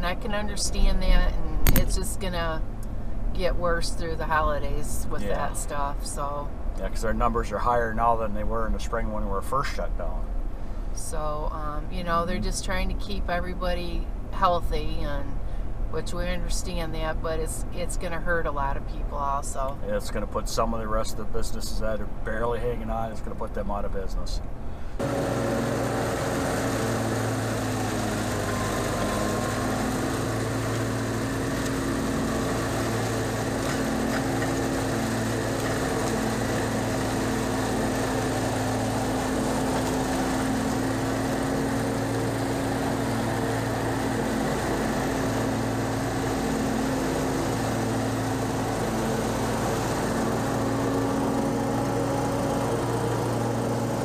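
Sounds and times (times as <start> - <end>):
leaf blower engine running: 5.0 - 5.8, 25.0 - 54.0.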